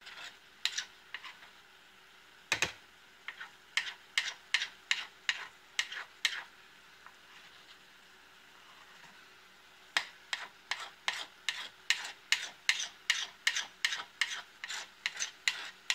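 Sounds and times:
metal spoon scraping a skillet: 0.0s - 1.6s, 3.2s - 6.5s, 10.0s - 15.9s.

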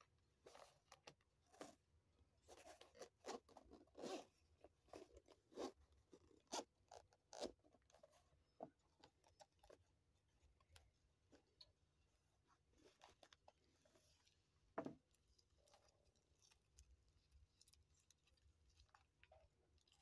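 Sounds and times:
zipper zipping: 2.5s - 5.8s.

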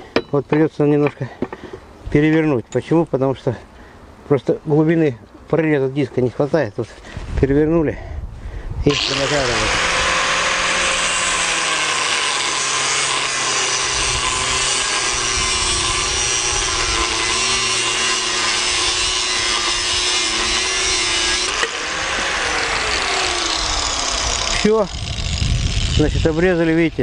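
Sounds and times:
angle grinder cutting metal: 8.9s - 27.0s.

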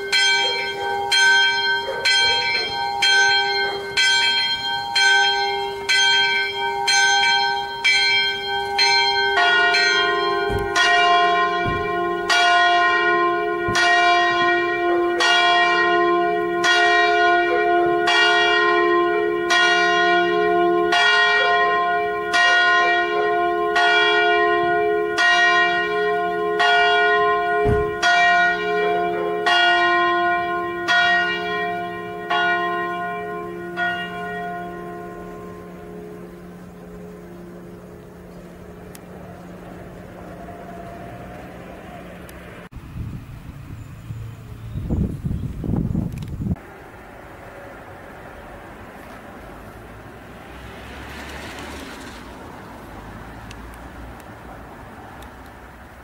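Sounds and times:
deep large bell striking: 0.0s - 41.1s.

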